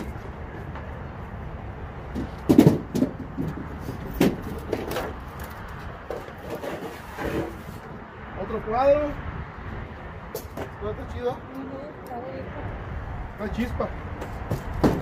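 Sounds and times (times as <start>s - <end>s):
hollow letters and boxes knocking: 2.1s - 5.2s, 14.2s - 15.0s.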